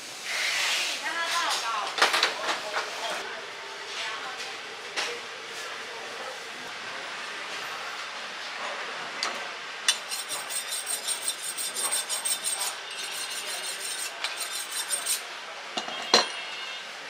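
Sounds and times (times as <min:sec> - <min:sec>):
knife honing on sharpening steel: 0:09.9 - 0:15.2.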